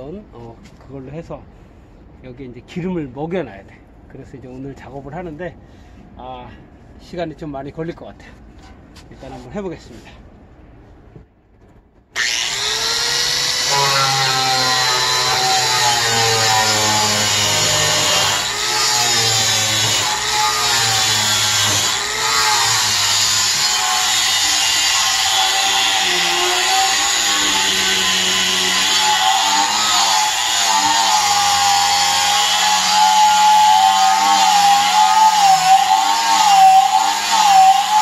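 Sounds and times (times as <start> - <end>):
angle grinder wire brush on metal: 12.2 - 38.0.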